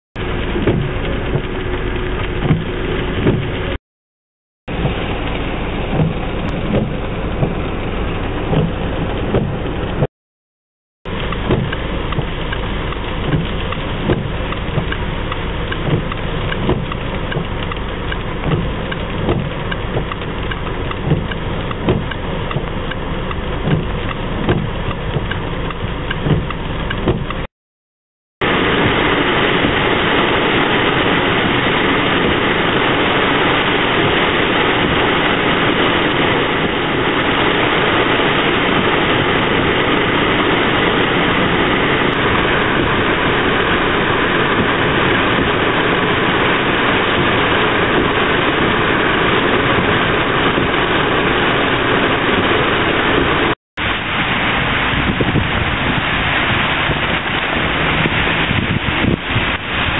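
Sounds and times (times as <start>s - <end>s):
rain on a car: 0.2s - 3.8s, 4.7s - 10.1s, 11.1s - 27.5s, 28.4s - 59.9s
traffic noise: 0.2s - 3.8s, 4.7s - 10.1s, 11.1s - 27.5s, 28.4s - 59.9s.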